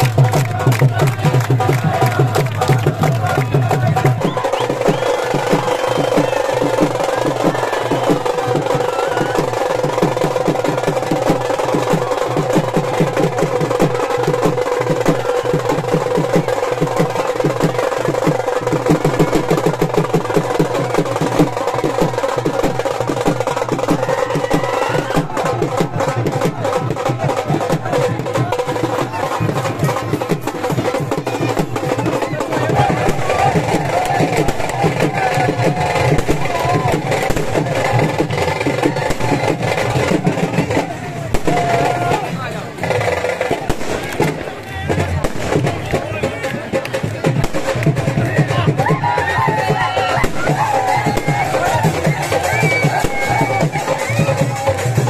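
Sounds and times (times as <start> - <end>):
rapid dhol drumming: 0.0 - 55.0.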